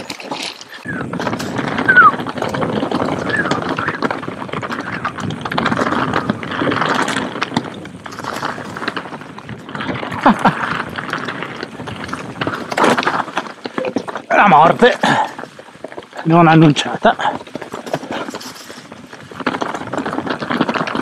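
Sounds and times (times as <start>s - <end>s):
bike rattling over stones: 0.0s - 21.0s.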